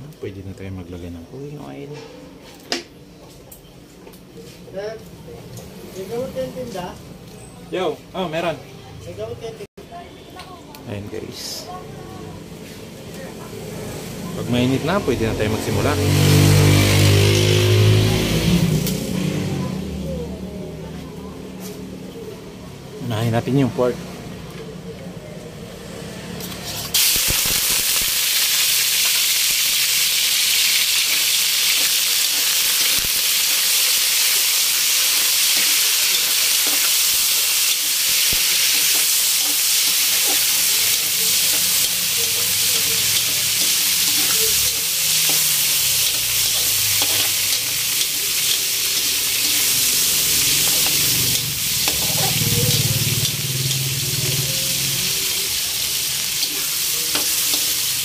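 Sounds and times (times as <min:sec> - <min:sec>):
meat sizzling in hot oil: 0:14.4 - 0:19.0, 0:26.7 - 0:58.0
spatula stirring in a wok: 0:30.3 - 0:58.0.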